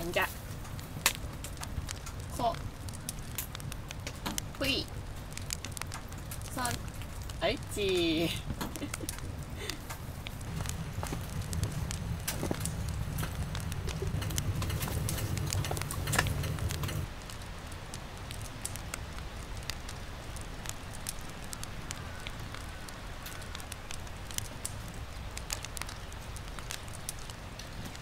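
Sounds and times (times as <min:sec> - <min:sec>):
low rumble: 0:00.0 - 0:17.2
wood fire crackling and popping: 0:00.0 - 0:28.0.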